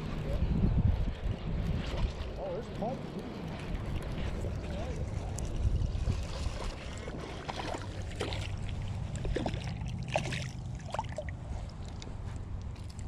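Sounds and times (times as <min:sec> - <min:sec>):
wind on microphone: 0:00.0 - 0:13.0
fish splashing in water: 0:06.0 - 0:12.0.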